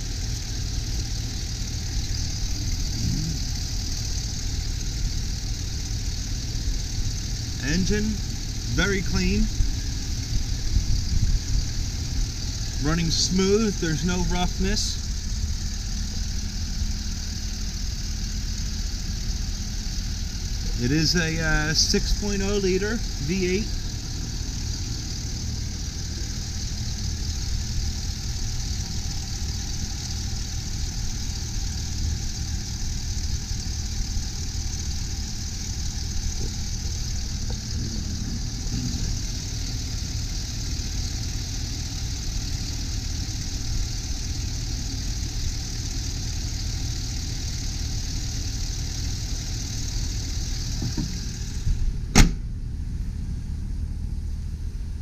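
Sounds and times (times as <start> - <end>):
truck engine idling: 0.0 - 55.0
hood shutting with a bang: 50.8 - 52.6.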